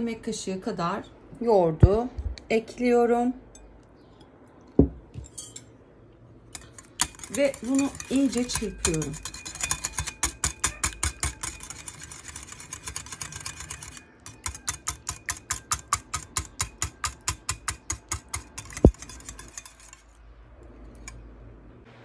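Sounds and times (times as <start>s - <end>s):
knock on bowl: 4.8s - 5.0s
whisk clicking against bowl: 6.5s - 20.1s.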